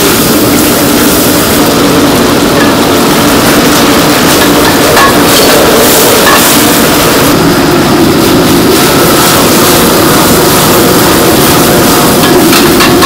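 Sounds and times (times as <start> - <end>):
gas wok burner roaring: 0.0 - 13.0
fish sizzling in a wok: 8.0 - 13.0.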